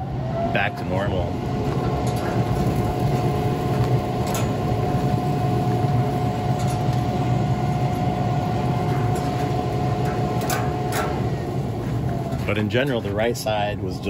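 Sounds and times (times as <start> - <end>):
grill fan humming with whine: 0.0 - 14.0
metal tongs clicking on grate: 10.0 - 11.2.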